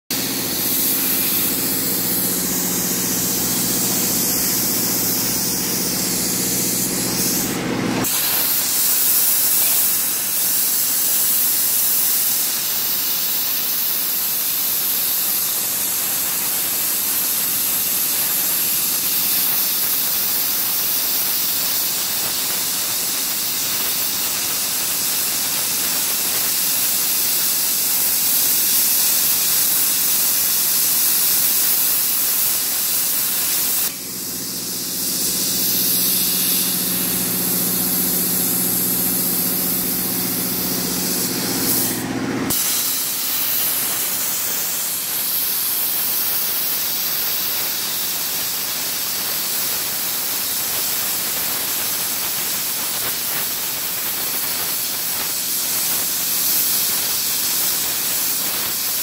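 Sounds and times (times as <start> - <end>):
plasma torch cutting hiss: 0.1 - 59.0
machine hum: 33.9 - 42.6.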